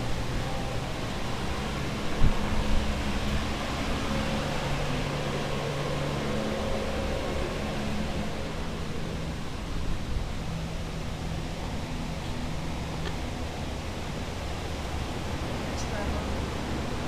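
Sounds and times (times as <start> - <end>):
air movers and dehumidifier humming: 0.0 - 17.0.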